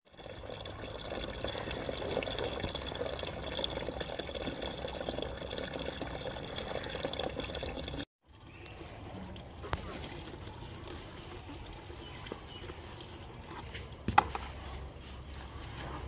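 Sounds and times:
hose water splashing into bucket: 0.0 - 14.1.

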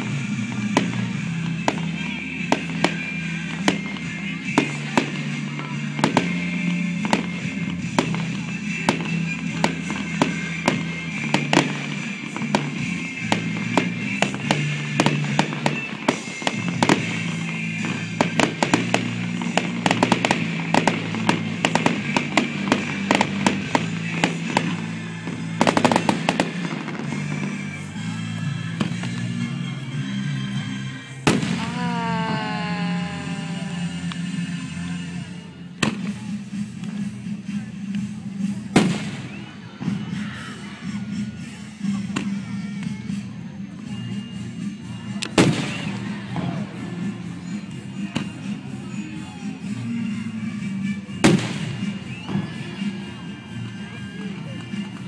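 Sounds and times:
fireworks cracking and popping: 0.0 - 28.0, 31.3 - 34.3, 45.2 - 46.6, 51.2 - 52.6
music: 0.0 - 55.0.

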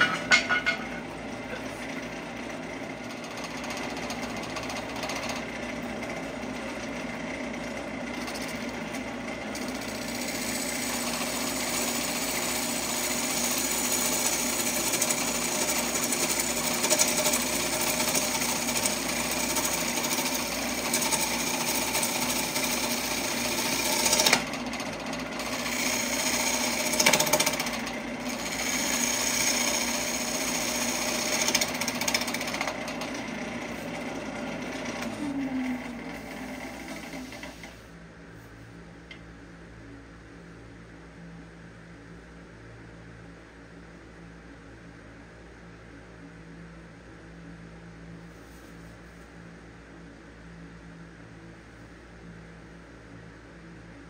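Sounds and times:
wood lathe humming: 0.0 - 37.8.

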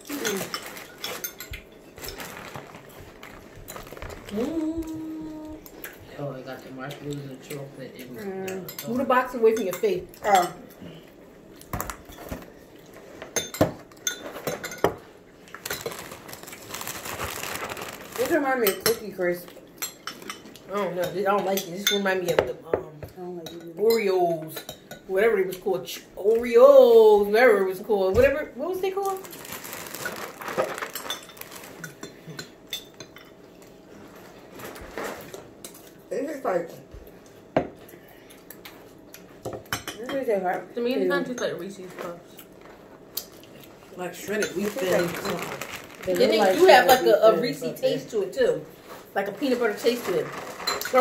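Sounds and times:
spoons clinking against bowls: 0.1 - 2.2, 8.5 - 10.7, 13.3 - 15.0, 18.6 - 19.1, 50.6 - 51.0
scraping and rustling: 0.1 - 4.7, 15.6 - 18.6, 29.2 - 32.0, 34.0 - 35.5, 44.4 - 46.6, 48.8 - 51.0
spoons clinking on glass bowls: 13.3 - 15.0, 30.9 - 33.4.

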